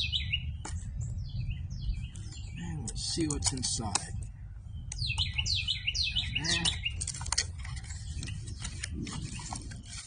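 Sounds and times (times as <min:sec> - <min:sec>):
songbird whistling: 0:00.0 - 0:00.6, 0:04.7 - 0:07.1
cardboard box crackling open: 0:06.5 - 0:10.0.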